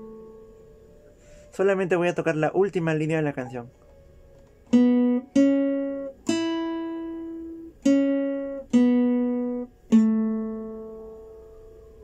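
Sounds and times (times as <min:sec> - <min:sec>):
classical guitar plucked notes: 0:00.0 - 0:00.9, 0:04.6 - 0:12.0.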